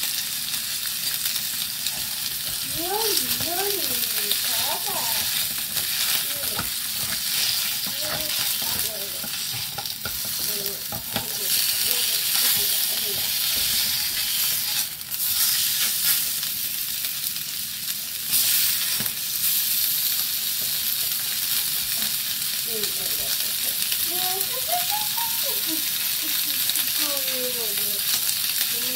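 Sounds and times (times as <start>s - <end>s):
meat sizzling in a pot: 0.0s - 28.9s
spatula and tongs scraping: 1.0s - 16.3s.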